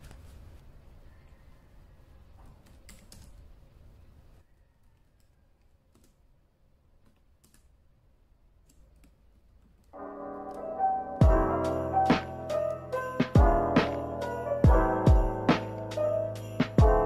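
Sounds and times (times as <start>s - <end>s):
laptop keyboard typing clicks: 2.5s - 3.4s
music: 10.0s - 17.0s.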